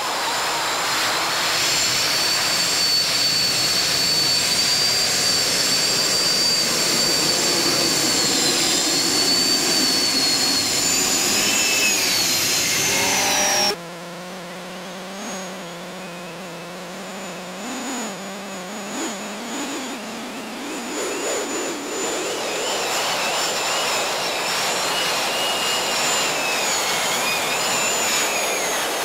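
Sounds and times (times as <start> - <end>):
turbine engine roaring with whine: 0.0 - 29.0.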